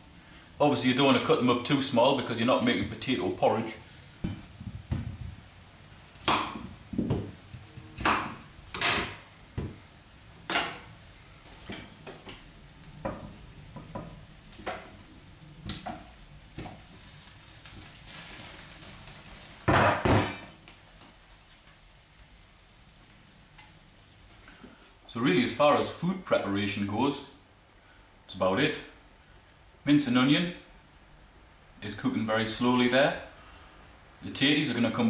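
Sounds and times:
knife chopping on wooden board: 6.2s - 7.3s, 8.0s - 9.8s.

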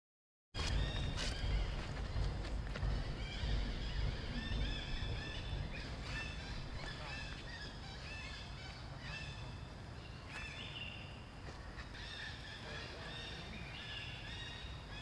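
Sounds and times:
low rumble: 0.6s - 9.8s
monkeys calling: 0.7s - 9.6s.

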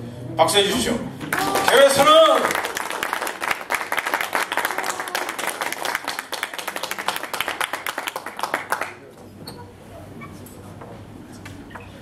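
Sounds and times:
audience applauding: 1.2s - 9.1s.

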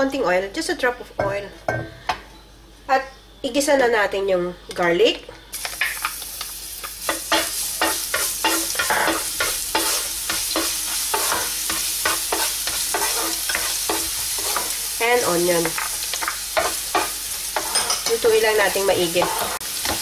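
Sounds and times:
garlic sizzling in hot oil: 5.5s - 20.0s.

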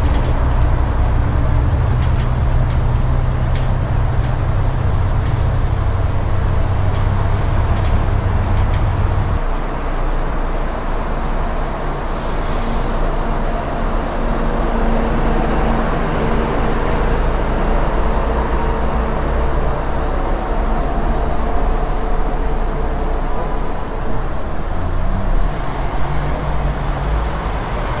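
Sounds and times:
road traffic din: 0.0s - 28.0s
faint high squeaks: 16.5s - 21.0s.

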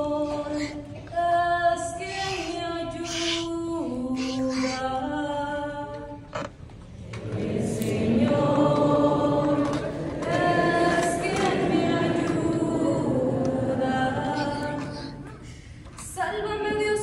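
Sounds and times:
group of voices singing: 0.0s - 5.7s, 7.0s - 15.2s
person singing: 1.8s - 4.9s.

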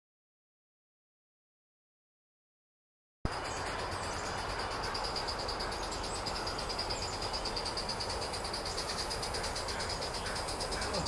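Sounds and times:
insects chirring: 3.3s - 11.0s.

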